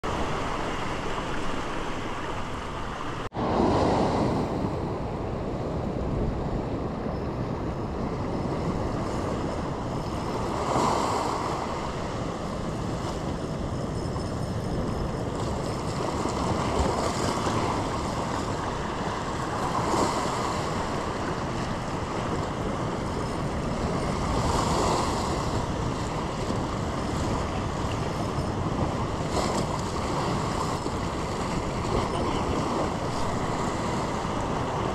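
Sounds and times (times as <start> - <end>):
wind buffeting microphone: 2.8 - 34.9.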